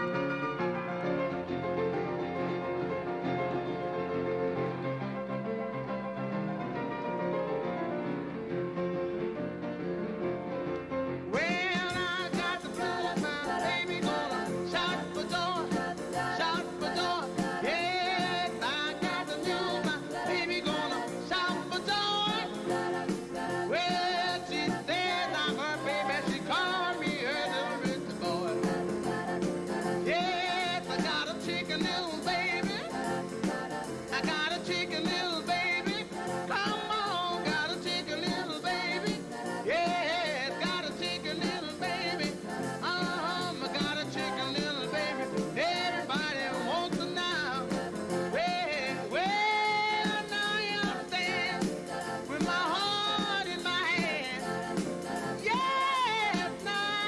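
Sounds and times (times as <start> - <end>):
rock and roll backing band: 6.3 - 57.0
man singing: 11.3 - 13.1.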